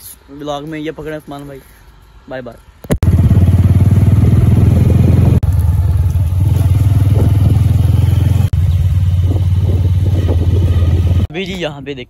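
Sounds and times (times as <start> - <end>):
motorcycle engine running: 3.0 - 11.3.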